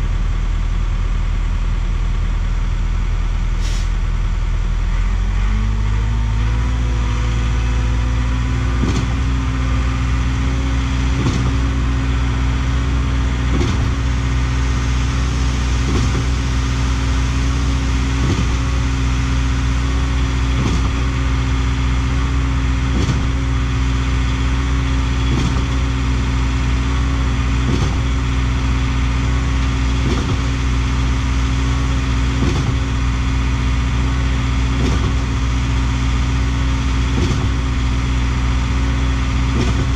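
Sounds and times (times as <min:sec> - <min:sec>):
concrete pump engine running: 0:00.0 - 0:39.9
pump knocking: 0:08.7 - 0:09.5, 0:11.0 - 0:11.9, 0:13.4 - 0:14.9, 0:15.7 - 0:17.2, 0:18.2 - 0:18.9, 0:20.5 - 0:21.2, 0:22.8 - 0:23.5, 0:25.2 - 0:25.8, 0:27.5 - 0:28.3, 0:29.9 - 0:30.8, 0:32.3 - 0:33.3, 0:34.7 - 0:35.6, 0:37.0 - 0:38.2, 0:39.4 - 0:39.9.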